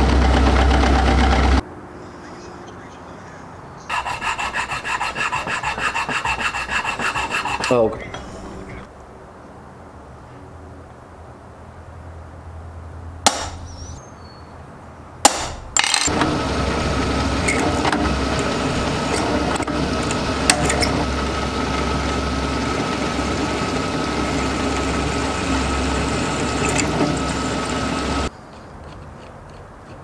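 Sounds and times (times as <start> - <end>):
hammer striking center punch: 13.3 - 13.7, 15.2 - 16.1
drill press whining: 15.8 - 28.3.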